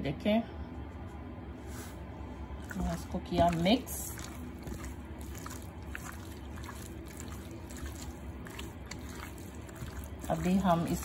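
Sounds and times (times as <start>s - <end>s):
hand squishing raw chicken: 2.5s - 11.0s.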